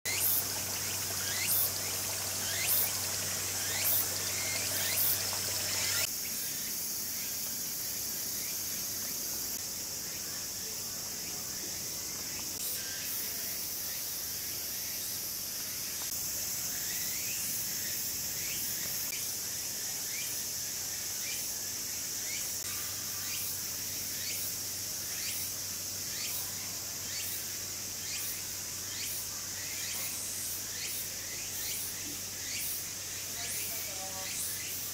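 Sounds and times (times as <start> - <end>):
high-pitched insect chorus: 0.1 - 34.9.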